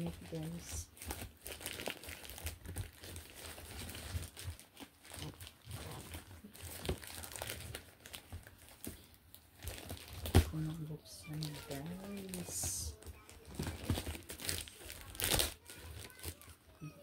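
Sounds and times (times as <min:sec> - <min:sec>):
plastic mailer bag crinkling: 0:00.0 - 0:16.6.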